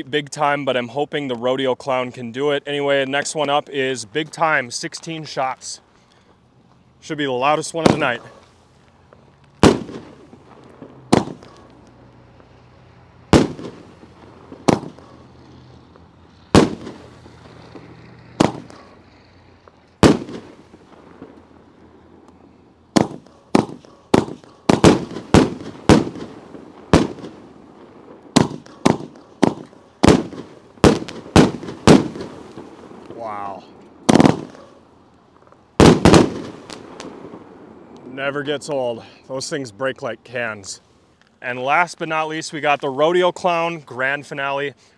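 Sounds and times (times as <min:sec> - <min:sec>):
fireworks banging: 0:07.0 - 0:38.8.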